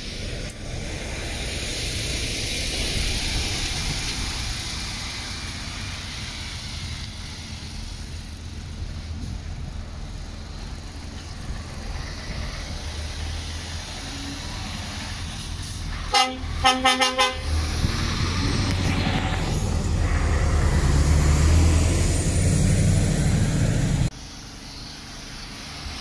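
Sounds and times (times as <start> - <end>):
lorry engine driving past: 17.3 - 24.1.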